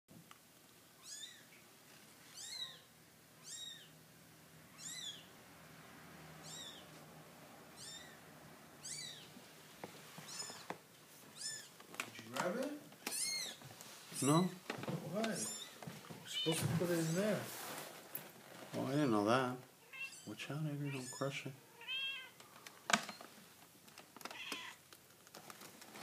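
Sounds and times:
kittens mewing: 0:02.3 - 0:04.0, 0:04.6 - 0:05.3, 0:06.4 - 0:06.9, 0:07.7 - 0:09.4, 0:10.2 - 0:10.7, 0:11.3 - 0:11.8, 0:13.0 - 0:14.5, 0:19.8 - 0:22.4, 0:24.3 - 0:24.8.

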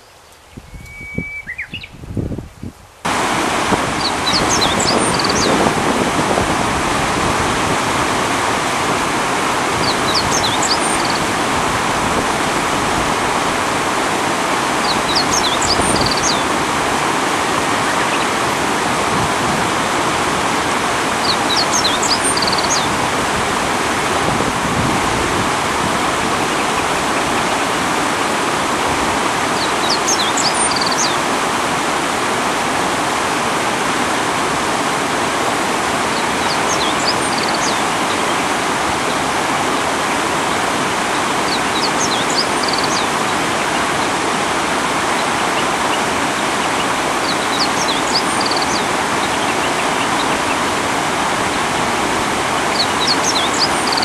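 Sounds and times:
bird chirping: 0:00.0 - 0:02.0, 0:04.0 - 0:05.6, 0:09.8 - 0:11.2, 0:14.9 - 0:16.4, 0:21.3 - 0:22.9, 0:29.6 - 0:31.2, 0:41.5 - 0:43.1
water rushing over a weir: 0:03.0 - 0:54.0.

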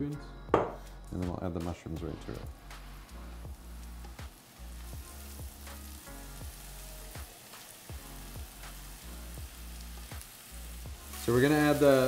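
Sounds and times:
background music with steady beat: 0:00.0 - 0:12.0
mushrooms sizzling in hot oil: 0:02.4 - 0:12.0.

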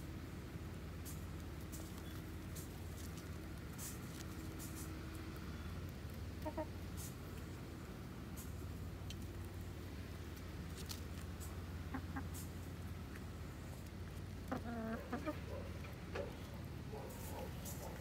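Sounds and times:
hens clucking: 0:06.4 - 0:06.8, 0:11.4 - 0:12.6, 0:14.4 - 0:18.0.

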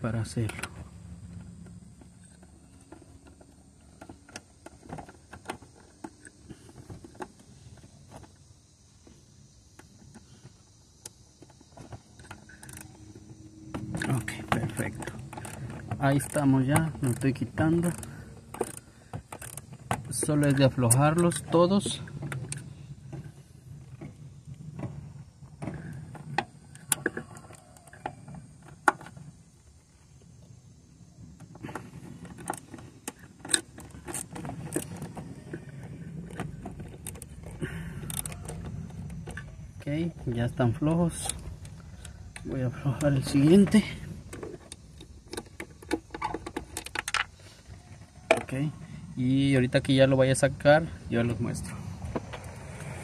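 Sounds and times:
ratchet clicking: 0:12.4 - 0:12.9.

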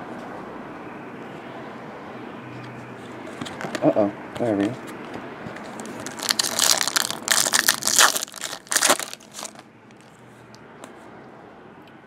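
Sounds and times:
foil wrapper crinkling: 0:05.6 - 0:09.6.

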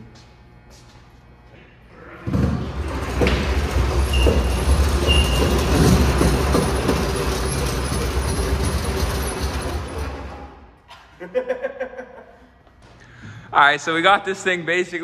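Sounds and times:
car shell rolling on dolly: 0:02.2 - 0:10.6
short high squeaks: 0:04.0 - 0:06.3.

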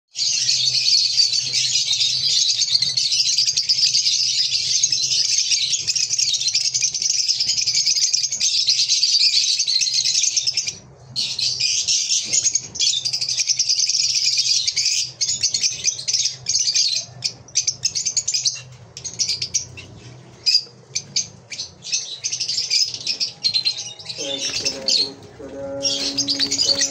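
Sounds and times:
birds chirping: 0:00.2 - 0:26.9
faint low hum: 0:18.7 - 0:26.9.

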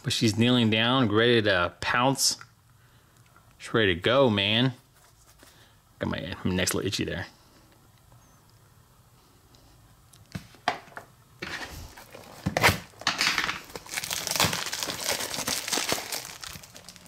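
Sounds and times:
packaging crinkling and tearing: 0:11.9 - 0:17.0
packaging clicks: 0:12.0 - 0:17.0.

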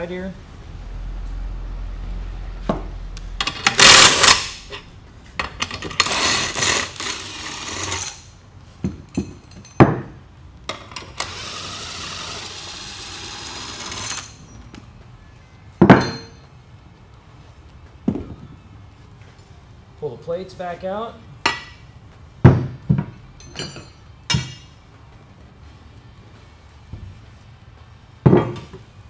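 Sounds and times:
scraping and rubbing in tire: 0:05.8 - 0:08.3.

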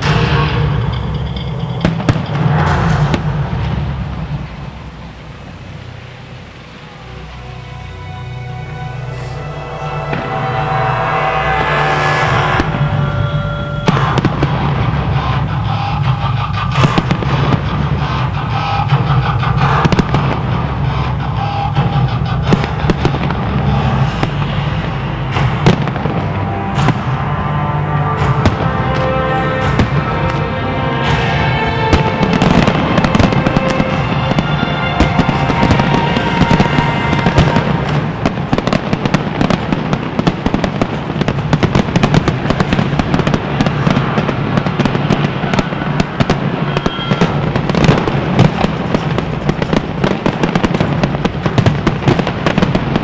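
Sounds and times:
background music: 0:00.0 - 0:53.0
rolling rumble: 0:00.0 - 0:53.0
firework shells bursting: 0:28.2 - 0:53.0.

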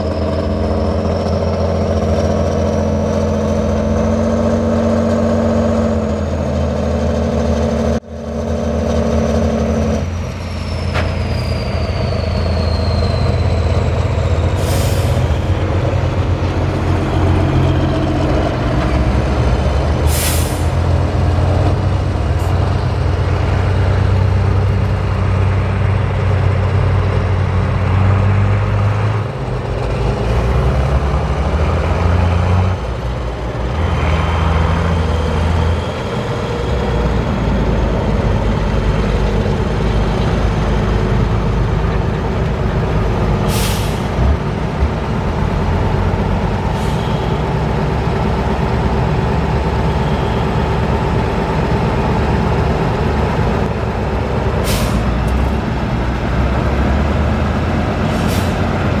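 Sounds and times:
truck diesel engine under load: 0:00.0 - 0:59.0
air release hisses: 0:20.1 - 0:20.8.

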